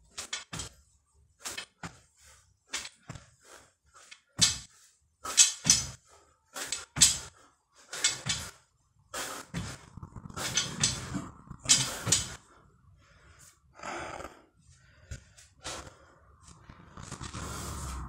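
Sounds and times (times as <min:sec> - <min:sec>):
man breathing heavily: 0:00.2 - 0:18.0.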